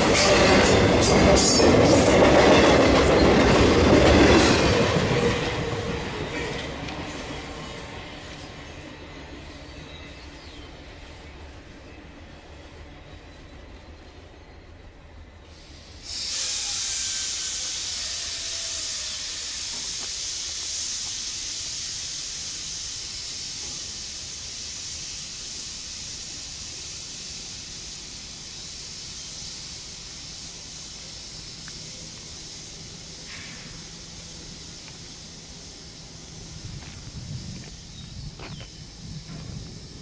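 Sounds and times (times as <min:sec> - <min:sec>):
air brakes hissing: 0:15.4 - 0:40.0.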